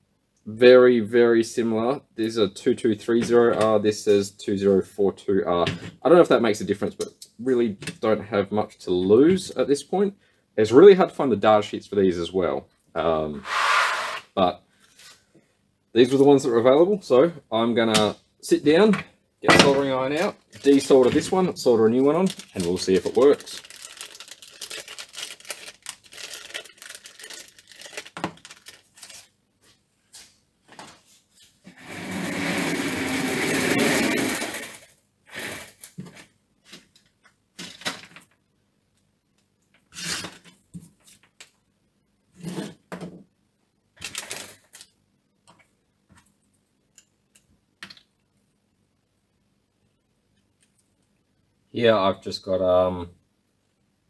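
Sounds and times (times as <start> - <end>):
packet rustling: 20.0 - 29.4, 44.0 - 45.0.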